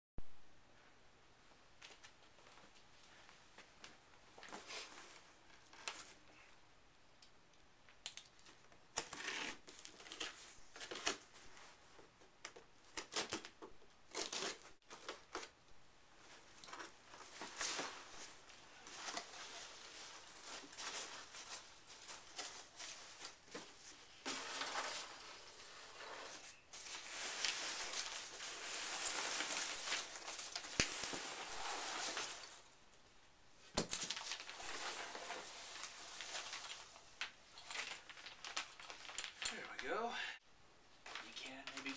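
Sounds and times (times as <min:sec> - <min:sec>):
packing peanuts rustling: 0:16.3 - 0:32.8, 0:33.8 - 0:39.9.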